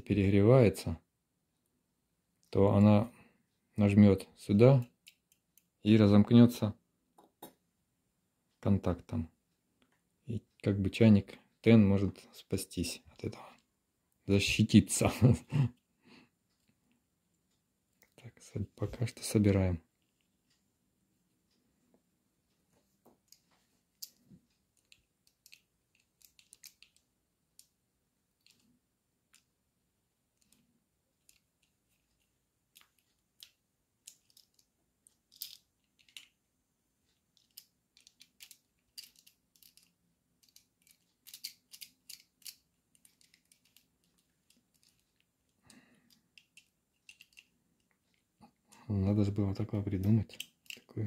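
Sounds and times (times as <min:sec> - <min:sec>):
screwdriver clicking and scraping: 0:24.8 - 0:27.0, 0:37.4 - 0:45.2, 0:46.1 - 0:48.2, 0:50.3 - 0:50.9.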